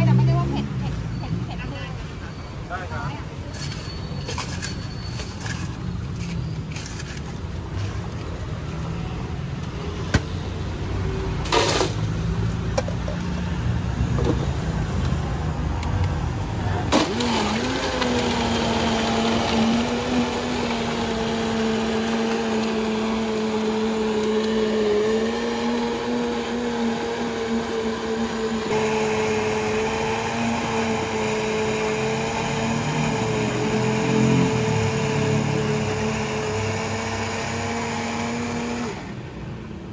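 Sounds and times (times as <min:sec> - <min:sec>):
electric blender running: 0:16.9 - 0:39.2.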